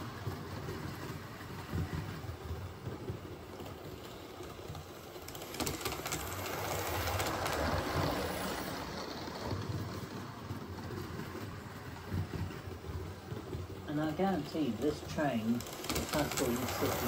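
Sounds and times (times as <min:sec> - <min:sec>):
wheels clicking over rail joints: 0:00.0 - 0:17.0
model train motor humming: 0:14.1 - 0:17.0.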